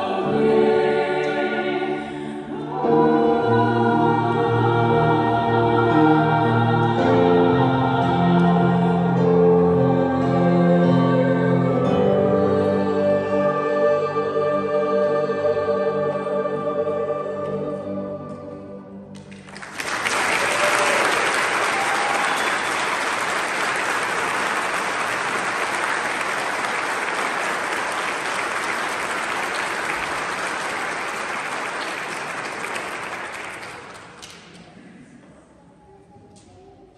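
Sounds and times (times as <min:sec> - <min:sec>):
congregation applauding: 0:19.1 - 0:34.7.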